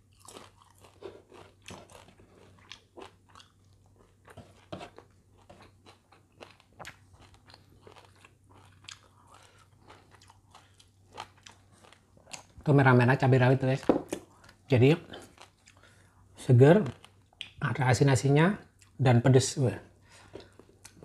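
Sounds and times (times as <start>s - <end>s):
person chewing crunchy food: 0.0s - 12.6s, 14.1s - 17.6s, 20.2s - 21.0s.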